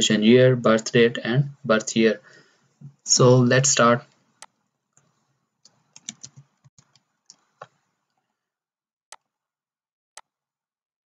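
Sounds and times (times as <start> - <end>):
keyboard and mouse clicks: 4.4 - 7.9.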